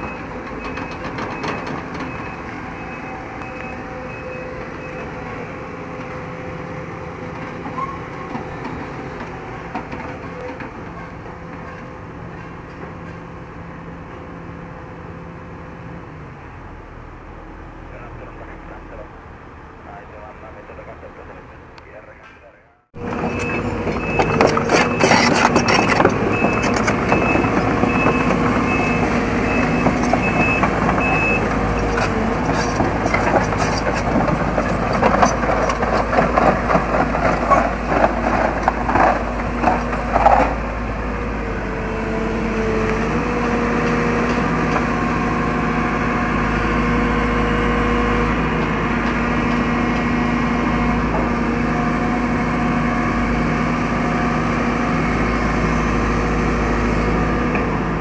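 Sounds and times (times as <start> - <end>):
excavator diesel engine running: 0.0 - 58.0
warning beeps: 22.6 - 31.9
steel tracks clanking: 23.0 - 40.6.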